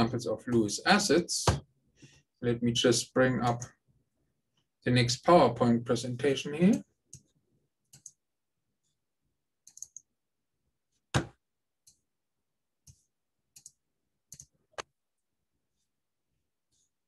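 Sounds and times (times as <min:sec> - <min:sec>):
computer mouse clicks: 0:07.9 - 0:08.2, 0:09.6 - 0:10.1, 0:12.8 - 0:14.9.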